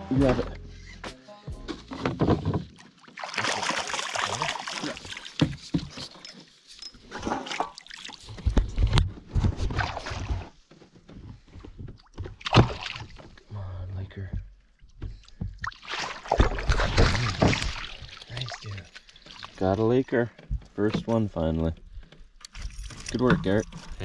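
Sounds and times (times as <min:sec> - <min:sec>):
water splashing: 0:02.4 - 0:06.1, 0:09.6 - 0:10.5, 0:12.3 - 0:13.5, 0:14.7 - 0:20.0.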